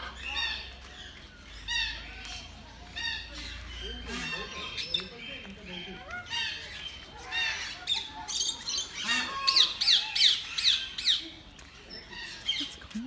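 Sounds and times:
parrots squawking: 0:06.1 - 0:11.2.

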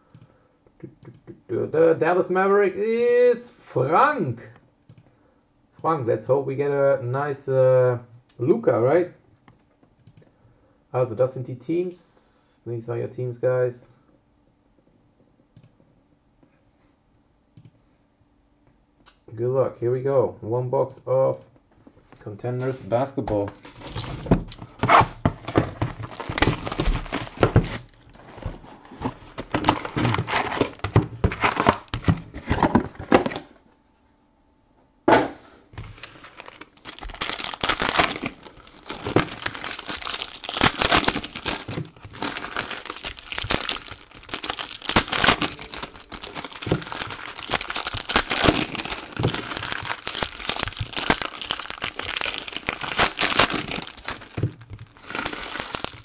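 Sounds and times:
packaging wrappers crinkling: 0:23.4 - 0:33.4, 0:35.8 - 0:56.0.

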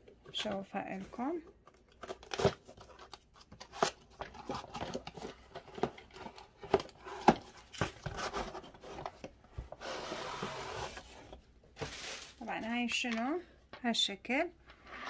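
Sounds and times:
plastic sliding against cardboard: 0:06.7 - 0:12.5.

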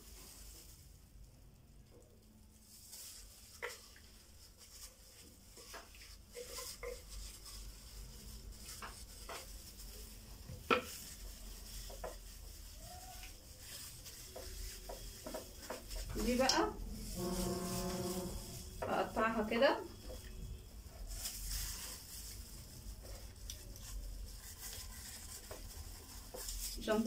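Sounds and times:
plastic scraping against glass: 0:04.7 - 0:27.0.

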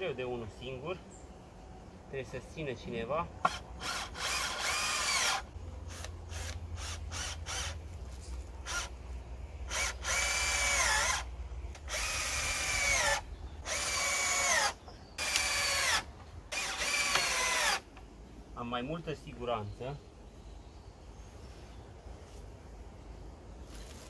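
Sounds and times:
cordless drill motor whine: 0:03.8 - 0:07.8, 0:09.7 - 0:17.8
drill trigger blips: 0:11.8 - 0:17.8.

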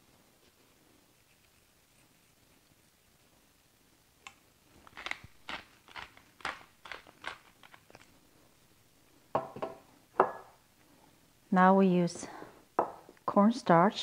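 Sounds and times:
pepper mill grinding: 0:04.8 - 0:08.2.

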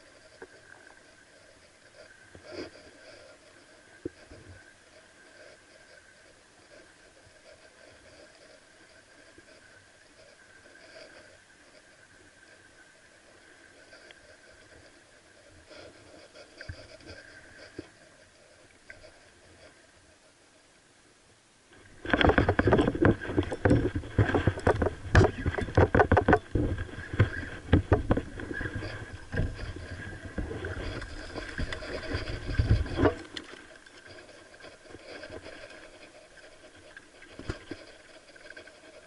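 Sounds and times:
fishing gear clattering and knocking: 0:22.0 - 0:36.1.

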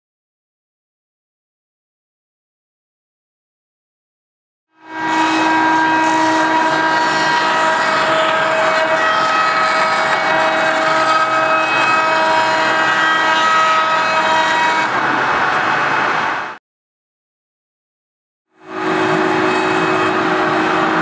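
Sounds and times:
router spindle whine: 0:18.7 - 0:21.0.

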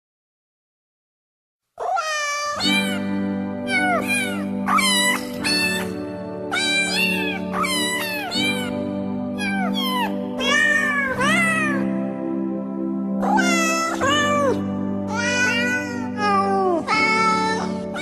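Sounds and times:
cats meowing: 0:01.8 - 0:03.1, 0:03.7 - 0:08.8, 0:09.4 - 0:11.9, 0:13.2 - 0:16.3
background music with held chords: 0:02.6 - 0:18.0.

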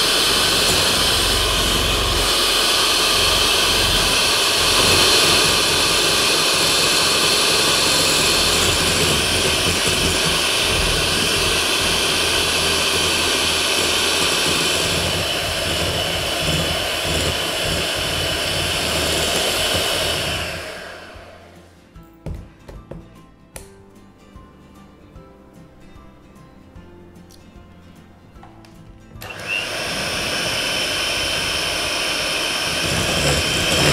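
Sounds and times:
electric hand mixer whipping: 0:00.0 - 0:21.6, 0:29.2 - 0:33.9.

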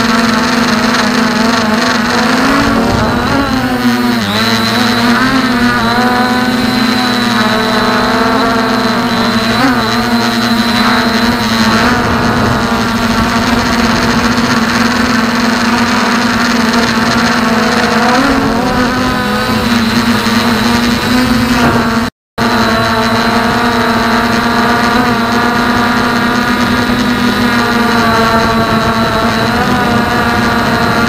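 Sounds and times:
drone propellers whining: 0:00.0 - 0:31.0.

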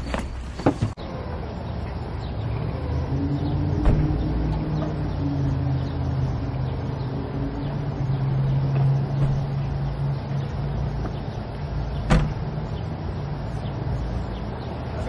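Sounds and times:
car door shutting: 0:03.8 - 0:04.2, 0:09.1 - 0:09.7, 0:12.0 - 0:12.5.

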